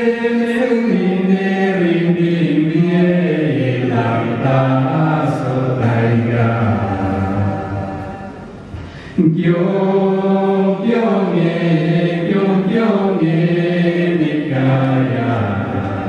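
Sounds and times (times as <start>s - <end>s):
voices singing a slow chant: 0.0s - 16.0s.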